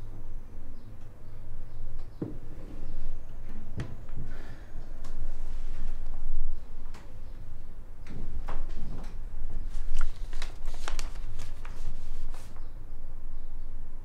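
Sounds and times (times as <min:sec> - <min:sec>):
paper and plastic folder rustling: 0:09.7 - 0:12.6.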